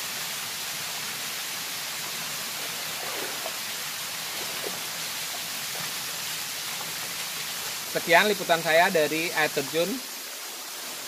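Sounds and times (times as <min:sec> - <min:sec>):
waterfall pouring into pool: 0:00.0 - 0:11.0
faint splashes of wading: 0:02.0 - 0:07.9.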